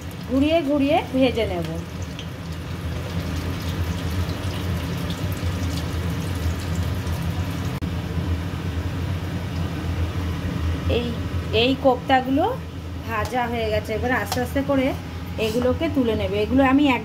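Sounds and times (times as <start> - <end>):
food deep-frying in oil: 0.0 - 7.8
low steady hum: 0.0 - 17.0.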